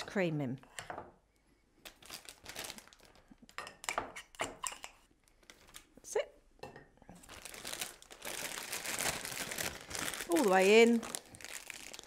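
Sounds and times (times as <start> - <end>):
plastic bag crinkling: 1.8 - 3.5, 5.2 - 5.9, 7.2 - 12.0.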